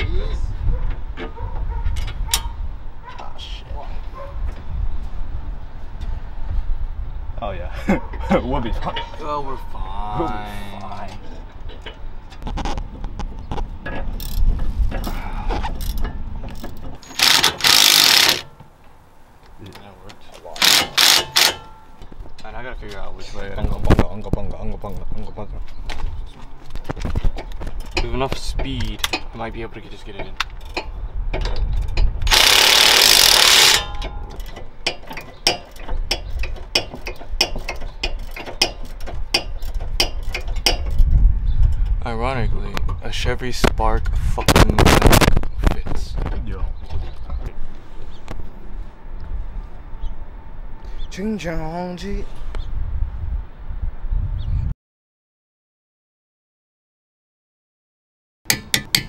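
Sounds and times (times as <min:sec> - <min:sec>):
metal clanks and knocks: 0:13.2 - 0:15.2, 0:15.8 - 0:18.7, 0:26.8 - 0:32.2, 0:33.5 - 0:41.1, 0:58.5 - 0:59.0
ratchet wrench clicking: 0:15.8 - 0:18.5, 0:20.6 - 0:21.7, 0:30.6 - 0:41.1.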